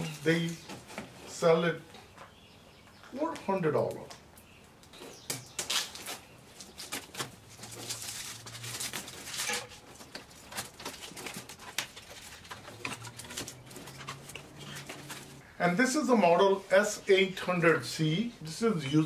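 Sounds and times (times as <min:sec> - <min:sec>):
cardboard box being opened: 0:06.8 - 0:15.4.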